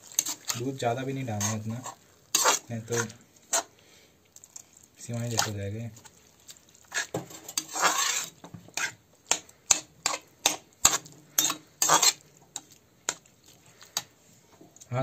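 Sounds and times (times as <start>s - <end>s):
metal spatula clinking on pan: 8.8s - 13.2s.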